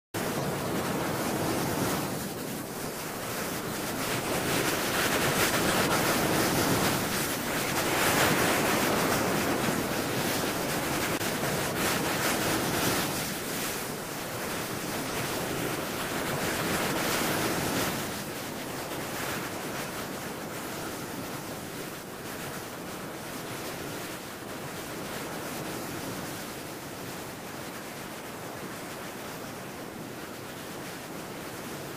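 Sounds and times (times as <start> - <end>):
waves breaking on a beach: 0.2 - 31.9.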